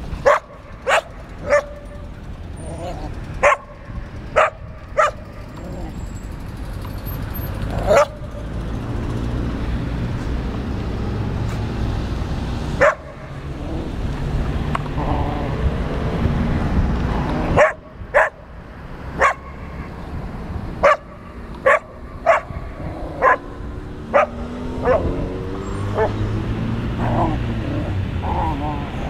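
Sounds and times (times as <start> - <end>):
dogs barking and yipping: 0.0 - 9.0, 12.6 - 15.6, 17.2 - 20.0, 20.7 - 29.0.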